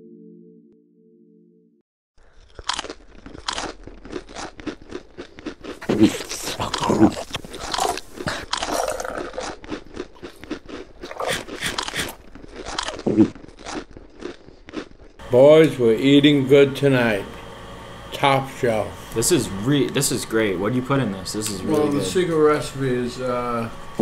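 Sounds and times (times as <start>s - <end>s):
crunching and chewing food: 2.2s - 15.3s.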